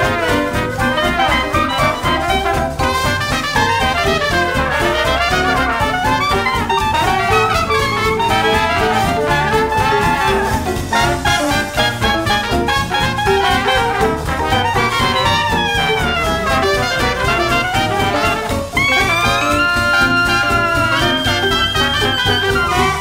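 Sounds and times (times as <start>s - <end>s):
jazz music with horns: 0.0s - 23.0s.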